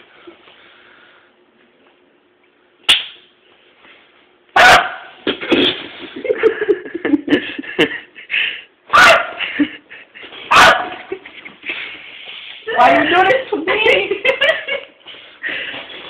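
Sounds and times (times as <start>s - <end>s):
dog yipping: 4.6s - 5.1s, 8.9s - 9.4s, 10.5s - 10.9s
dog barking: 4.6s - 5.2s, 8.9s - 9.4s, 10.5s - 11.0s.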